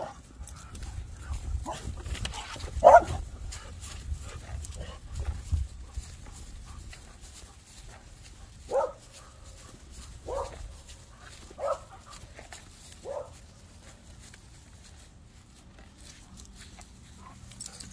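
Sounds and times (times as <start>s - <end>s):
dog barking: 2.8s - 3.2s, 8.7s - 9.4s, 10.2s - 10.6s, 11.6s - 12.2s, 13.0s - 13.4s.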